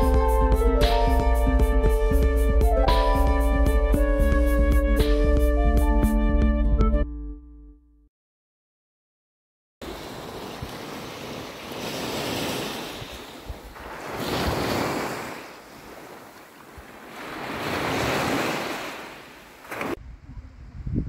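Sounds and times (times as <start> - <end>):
small waves breaking on beach: 9.8 - 20.0
wind buffeting microphone: 19.8 - 21.0.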